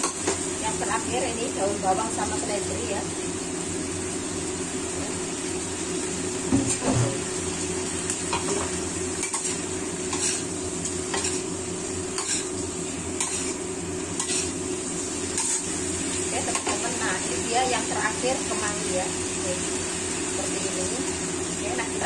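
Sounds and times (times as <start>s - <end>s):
sauce sizzling: 0.0s - 22.0s
metal spatula scraping a wok: 9.2s - 11.5s, 12.1s - 12.6s, 13.2s - 13.6s, 14.2s - 14.6s.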